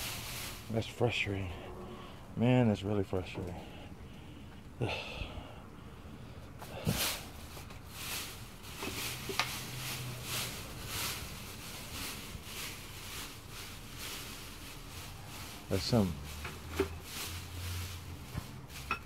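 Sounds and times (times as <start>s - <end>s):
plastic bags rustling and crinkling: 0.0s - 1.2s, 6.6s - 19.0s.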